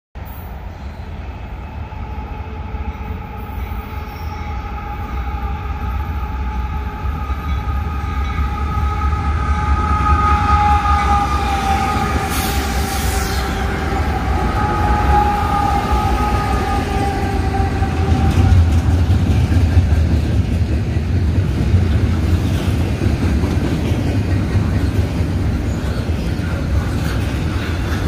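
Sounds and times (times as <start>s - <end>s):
diesel locomotive passing: 0.2s - 28.0s
locomotive whine: 0.5s - 22.4s.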